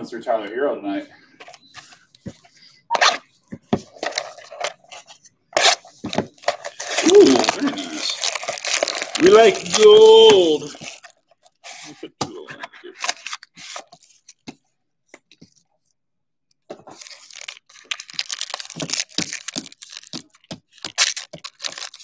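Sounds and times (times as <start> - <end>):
plastic wrapper tearing and crinkling: 5.6 - 11.6, 16.9 - 22.0.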